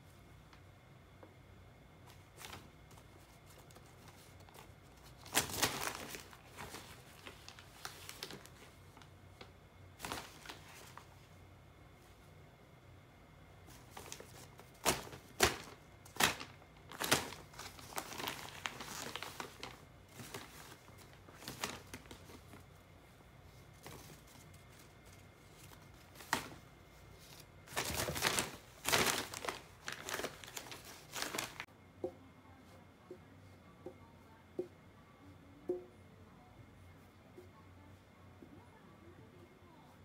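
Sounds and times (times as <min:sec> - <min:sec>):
paper bag crinkling: 0:02.1 - 0:09.1, 0:10.0 - 0:11.1, 0:13.7 - 0:22.6, 0:23.7 - 0:31.7.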